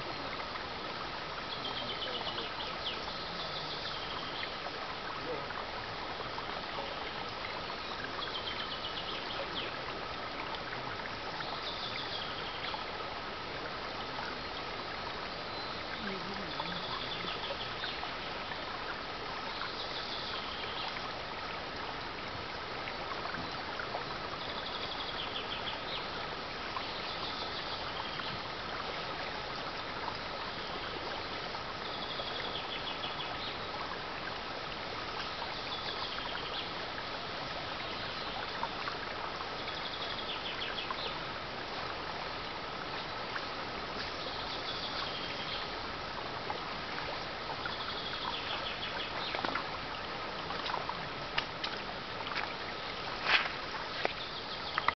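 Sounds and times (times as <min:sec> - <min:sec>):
stream flowing over stones: 0:00.0 - 0:54.9
bird song phrase: 0:01.5 - 0:04.6, 0:06.6 - 0:09.8, 0:15.4 - 0:18.1.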